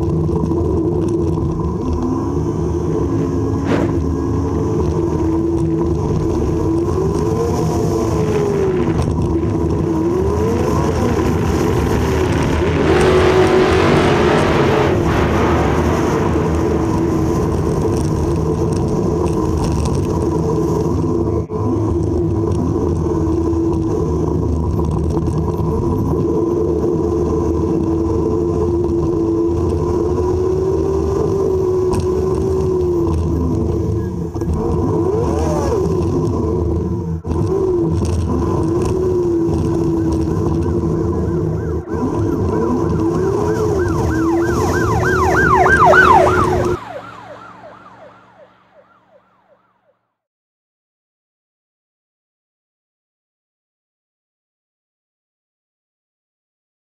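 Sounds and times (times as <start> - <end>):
car engine running: 0.0 - 26.7, 35.8 - 49.2
loud rush: 3.5 - 4.6, 44.3 - 49.0.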